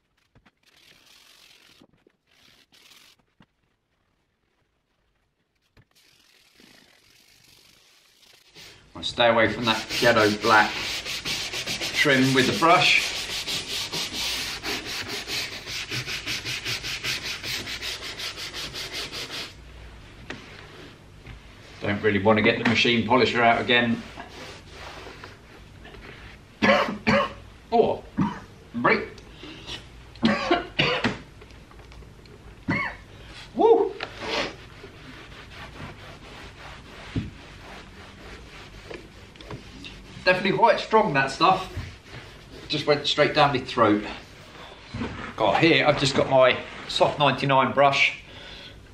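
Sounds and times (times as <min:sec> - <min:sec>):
brush scrubbing leather: 0:00.0 - 0:04.1, 0:05.1 - 0:19.6, 0:23.4 - 0:25.6, 0:34.1 - 0:43.5
man clearing throat and coughing: 0:26.6 - 0:27.4, 0:28.2 - 0:28.5, 0:30.2 - 0:31.2.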